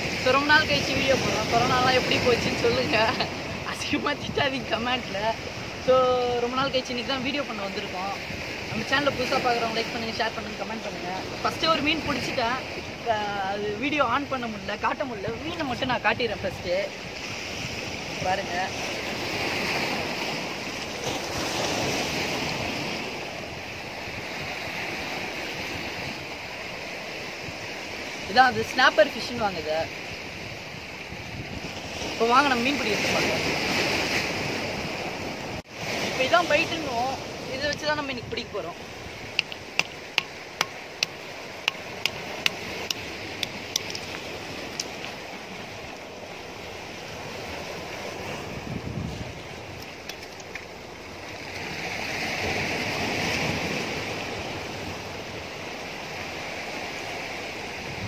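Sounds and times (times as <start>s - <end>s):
waves washing against rocks: 0.0s - 58.0s
wind on microphone: 0.0s - 58.0s
stone knocking shell on stone: 39.4s - 44.2s.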